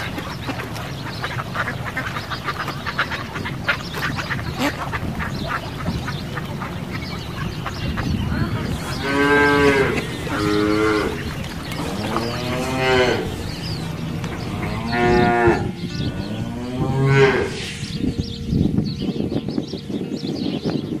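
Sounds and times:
outdoor background noise: 0.0 - 21.0
cattle mooing: 8.9 - 17.9.

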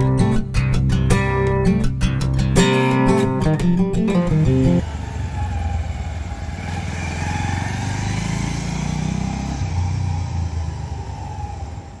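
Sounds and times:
motorcycle engine passing by: 4.5 - 12.0.

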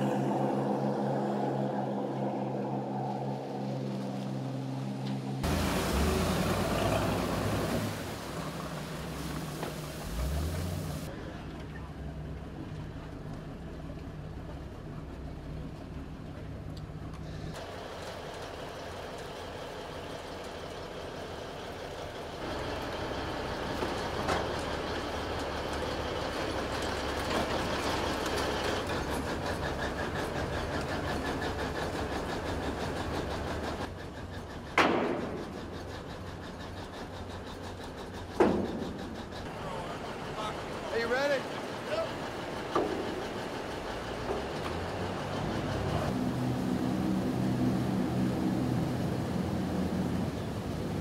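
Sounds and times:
armoured vehicle engine running: 0.0 - 51.0
steel tracks clanking on metal: 23.5 - 46.0.

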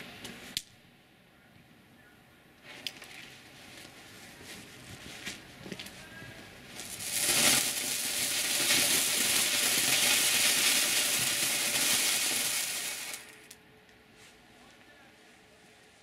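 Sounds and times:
firework fountain hissing: 6.6 - 13.6.

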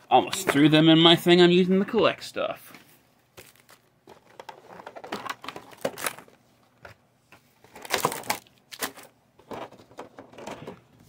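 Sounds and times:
foil wrappers rustling: 3.4 - 6.4, 7.7 - 9.1.

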